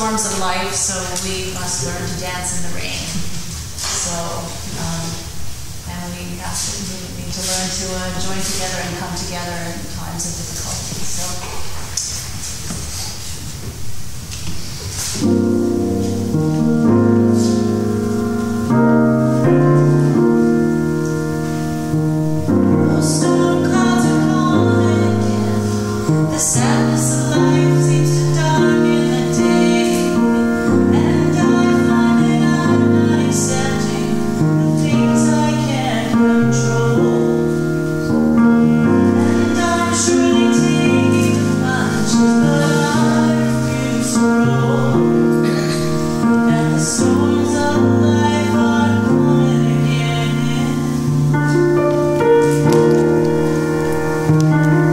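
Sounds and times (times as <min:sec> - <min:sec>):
grand piano playing: 0:00.0 - 0:54.9
woman singing: 0:22.7 - 0:37.8, 0:38.6 - 0:51.7.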